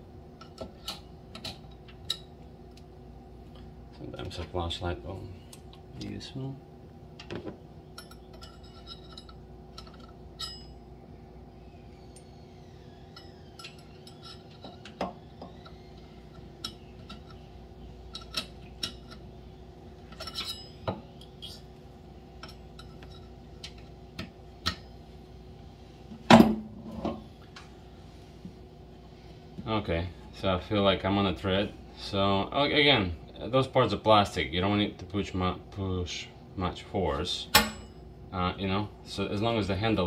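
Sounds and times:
steady low hum: 0.0s - 40.0s
metallic clank: 8.0s - 10.8s, 37.5s - 38.0s.

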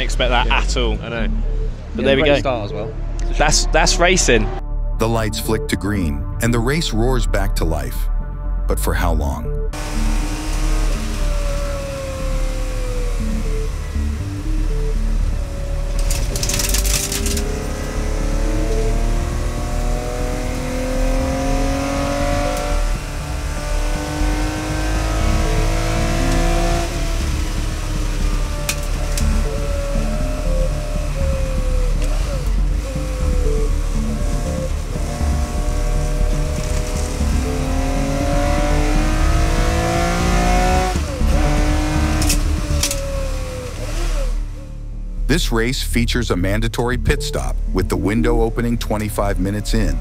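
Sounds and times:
race car engine accelerating: 9.7s - 44.8s.

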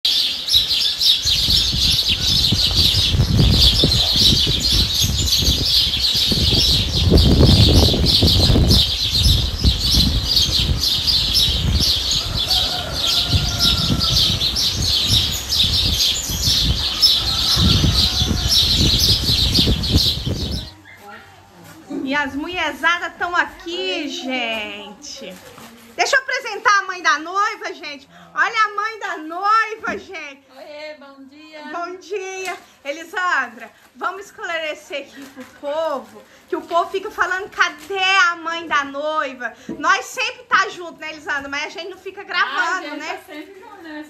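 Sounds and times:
small birds chirping: 0.0s - 21.4s.

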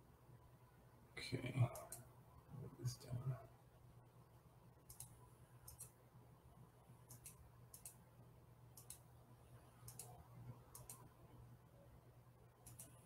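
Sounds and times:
low steady hum: 0.0s - 13.0s
computer mouse clicks: 1.7s - 2.1s, 4.9s - 6.0s, 7.1s - 8.0s, 8.8s - 9.1s, 9.8s - 11.1s, 12.6s - 13.0s.

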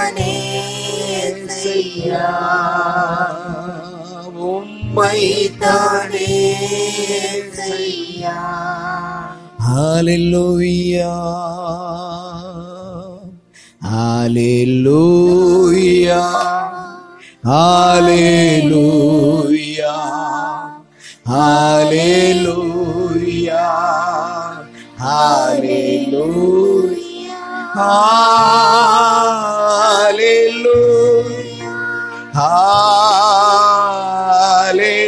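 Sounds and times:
person singing with vibrato: 0.0s - 35.0s
sustained backing notes: 0.0s - 35.0s.

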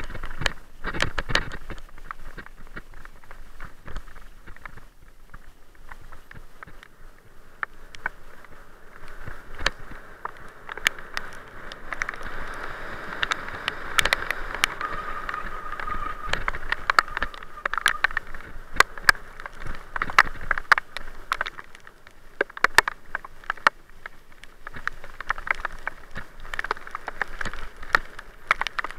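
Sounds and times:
bicycle knocks and rattles: 0.0s - 6.9s
bicycle tyres rolling on gravel: 0.0s - 28.9s
bicycle squeal: 13.4s - 18.7s.

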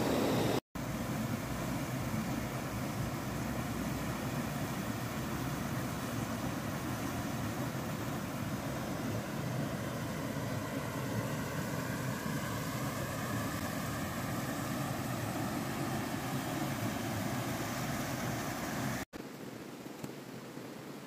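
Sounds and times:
faint steady hum: 0.0s - 21.0s
creek water running over rocks: 12.0s - 21.0s.

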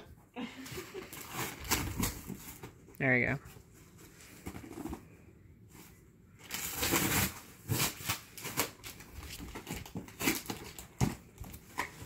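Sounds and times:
cardboard and plastic crinkling: 0.7s - 2.9s, 6.4s - 12.0s.

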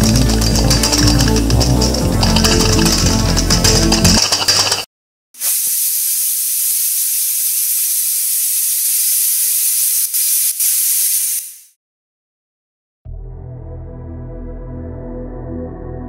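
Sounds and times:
pressure cooker hissing steam: 5.4s - 11.8s.

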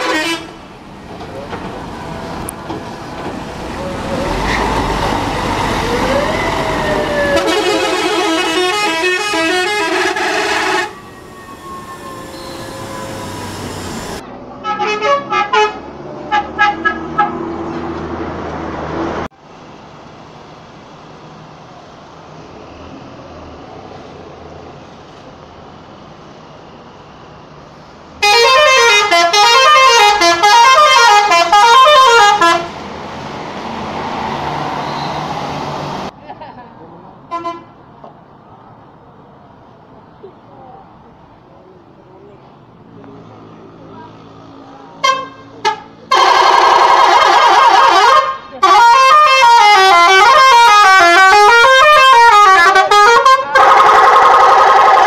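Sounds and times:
multi-tone musical bus horns: 0.0s - 0.7s, 3.8s - 17.6s, 28.2s - 32.8s, 37.3s - 37.8s, 45.0s - 55.0s
bus traffic noise: 0.0s - 55.0s.

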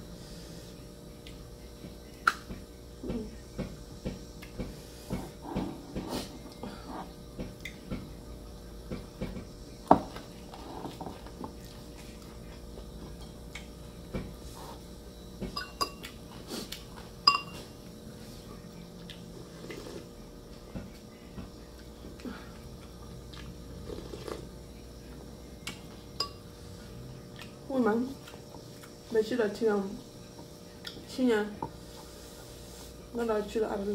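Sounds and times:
spoon clinking on ceramic bowls: 15.5s - 16.0s, 17.2s - 17.6s, 26.2s - 26.4s
chewing: 19.0s - 20.1s, 21.6s - 24.5s, 27.2s - 27.6s.

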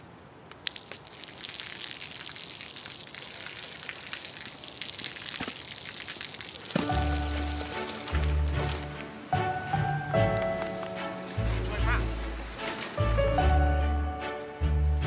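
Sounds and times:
city noise hiss: 0.0s - 15.0s.

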